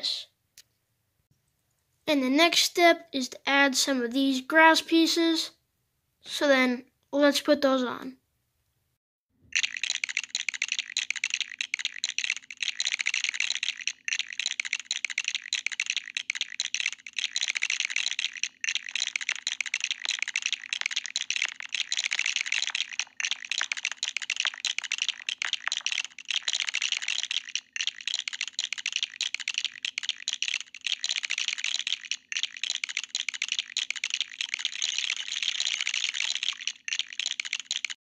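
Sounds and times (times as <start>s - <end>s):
plastic bricks clicking and rattling: 9.5s - 38.0s.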